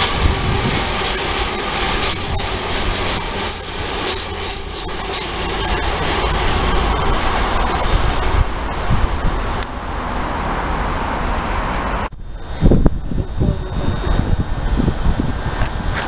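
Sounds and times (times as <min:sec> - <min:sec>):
high-pitched clicks and squeaks: 0:00.0 - 0:08.5
train wheels rumbling on rails: 0:00.0 - 0:16.0.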